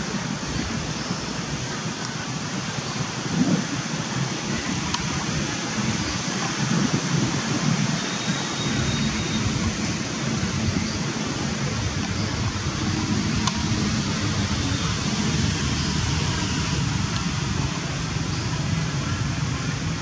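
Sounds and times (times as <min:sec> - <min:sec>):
steady rushing noise: 0:00.0 - 0:20.0
wind buffeting microphone: 0:00.0 - 0:20.0.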